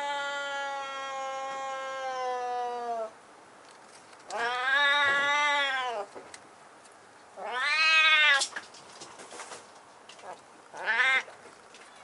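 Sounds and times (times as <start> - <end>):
kitten meowing: 4.3 - 6.1, 7.4 - 8.5, 10.8 - 11.3.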